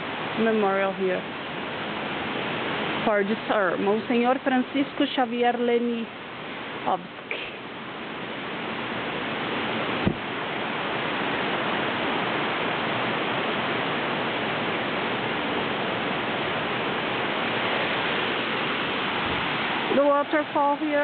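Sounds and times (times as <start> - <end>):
waterfall roaring: 0.0 - 21.0
brief knock: 10.0 - 10.2.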